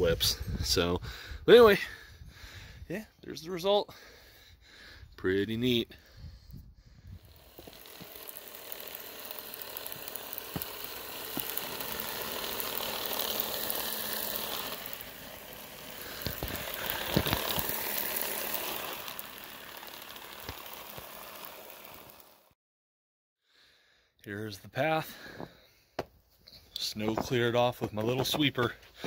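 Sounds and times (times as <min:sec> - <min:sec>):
rotary brush whirring: 0:06.9 - 0:22.6
small electric motor running: 0:06.9 - 0:22.6.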